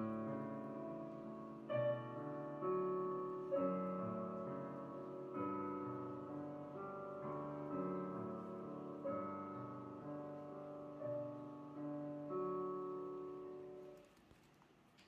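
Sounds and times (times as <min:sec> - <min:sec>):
gentle piano chords: 0:00.0 - 0:15.0.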